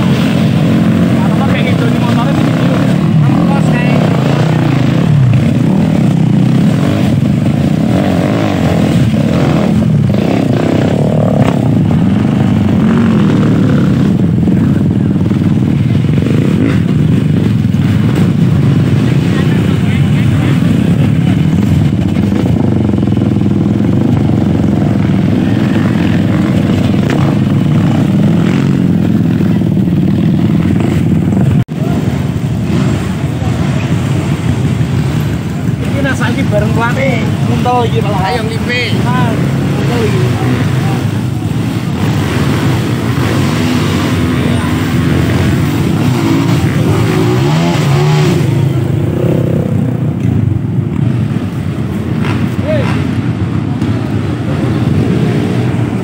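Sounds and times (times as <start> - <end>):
dirt bike engines running: 0.0 - 56.0
dirt bike revving: 0.0 - 56.0.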